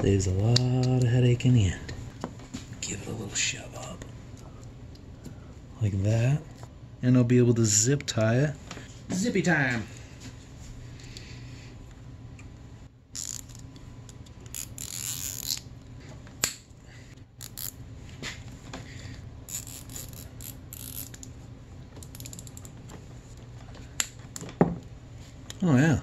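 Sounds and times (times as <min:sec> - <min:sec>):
zip tie ratchet clicking: 0:13.2 - 0:13.7, 0:14.4 - 0:15.6, 0:17.4 - 0:17.8, 0:19.5 - 0:21.3.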